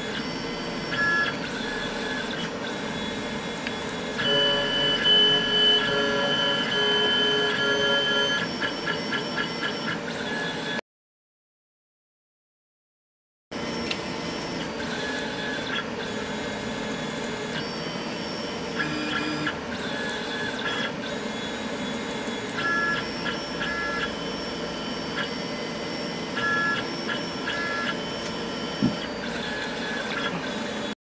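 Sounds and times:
stepper motors whining: 0:00.0 - 0:10.8, 0:13.6 - 0:31.0.

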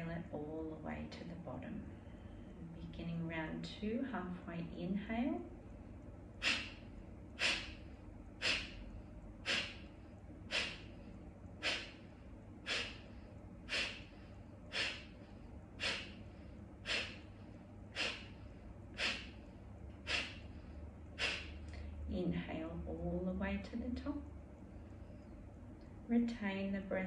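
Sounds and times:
forceful nasal exhales: 0:06.4 - 0:06.8, 0:07.4 - 0:19.4, 0:20.0 - 0:20.5, 0:21.2 - 0:21.7.

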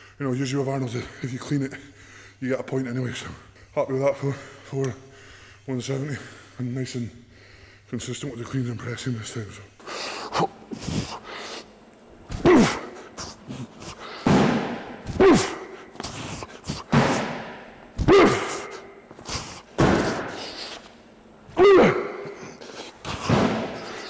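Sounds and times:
man grunting: 0:12.3 - 0:14.0, 0:15.1 - 0:17.3, 0:18.0 - 0:20.4, 0:21.5 - 0:24.0.

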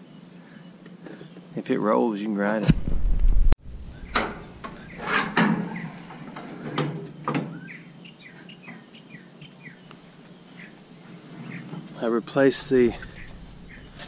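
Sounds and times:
songbird chirping: 0:00.0 - 0:02.0, 0:03.8 - 0:14.0.

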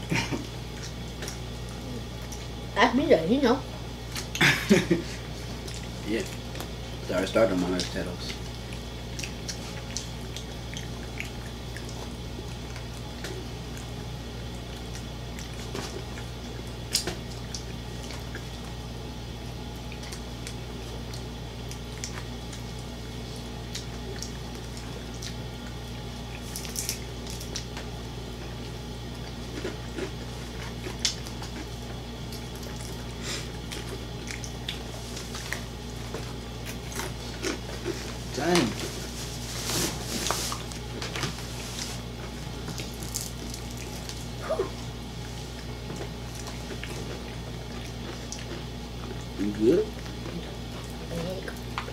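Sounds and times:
wet chewing and lip smacks: 0:07.7 - 0:18.8, 0:19.7 - 0:22.9, 0:23.6 - 0:27.9, 0:28.5 - 0:38.0, 0:42.6 - 0:51.9.

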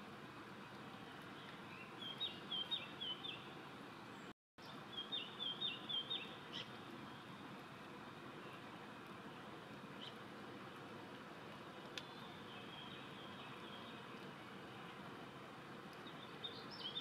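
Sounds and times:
steady background hiss: 0:00.0 - 0:17.0
songbird calling: 0:01.0 - 0:07.3, 0:10.0 - 0:10.2, 0:11.9 - 0:14.9, 0:16.0 - 0:17.0.

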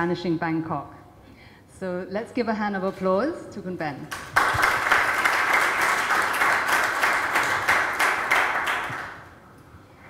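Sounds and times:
audience applauding: 0:04.1 - 0:09.4.

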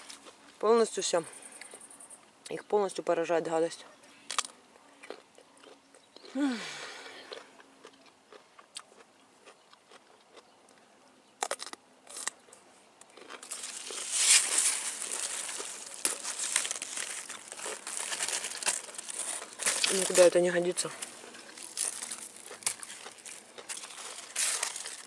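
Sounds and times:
leaves rustling and crackling: 0:13.3 - 0:25.0.

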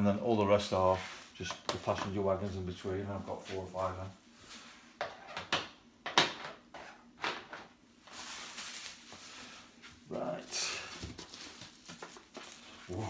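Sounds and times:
packaging rustling: 0:08.0 - 0:09.6, 0:10.4 - 0:13.0.

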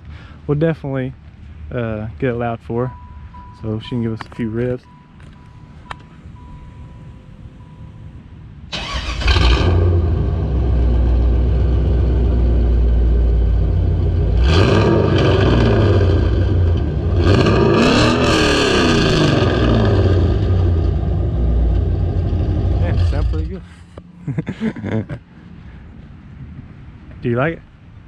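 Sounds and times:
engine revving: 0:08.8 - 0:23.7.

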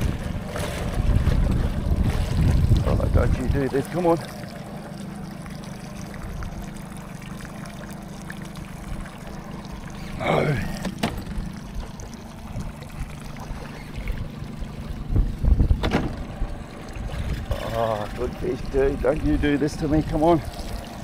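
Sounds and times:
electric motor hum: 0:00.0 - 0:21.0
water lapping against boat hull: 0:00.0 - 0:21.0.

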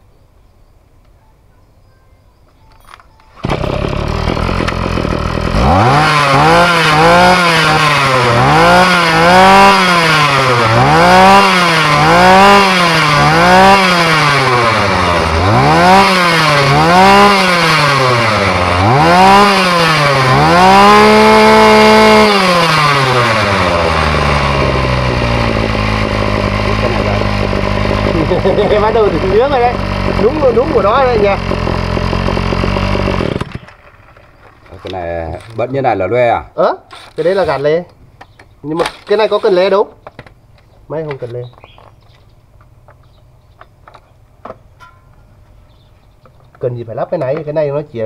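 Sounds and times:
two-stroke engine revving: 0:03.4 - 0:34.0.

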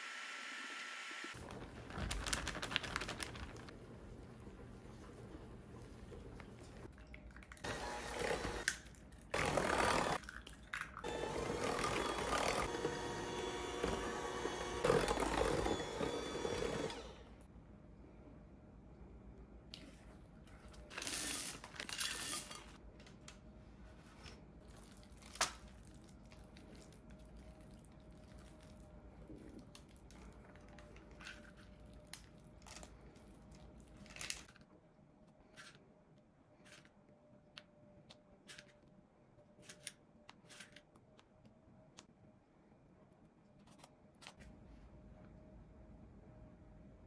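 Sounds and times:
crinkling or tearing: 0:01.4 - 0:03.7.

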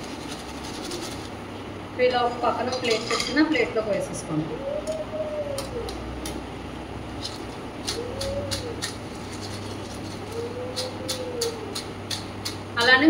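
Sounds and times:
low steady hum: 0:00.0 - 0:13.0
pigeon cooing: 0:00.1 - 0:01.3, 0:02.6 - 0:06.4, 0:07.2 - 0:12.6.

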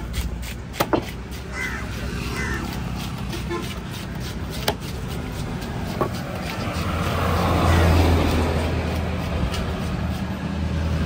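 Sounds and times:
knife chopping fish on wood: 0:00.0 - 0:10.3
crow cawing: 0:01.5 - 0:02.8.

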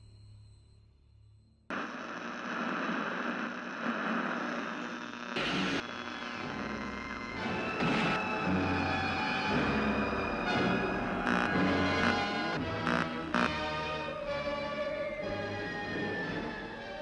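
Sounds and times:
television static hiss: 0:01.7 - 0:08.2.

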